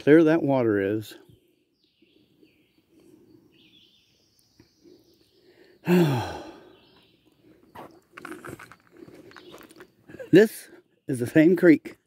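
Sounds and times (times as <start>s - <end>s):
man sighing: 5.8s - 6.8s.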